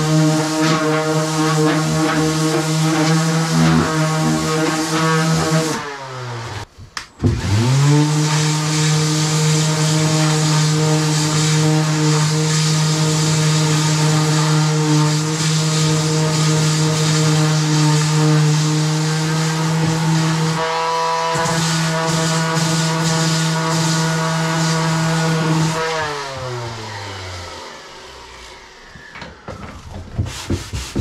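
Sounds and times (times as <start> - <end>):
power tool motor whine: 7.2 - 30.1.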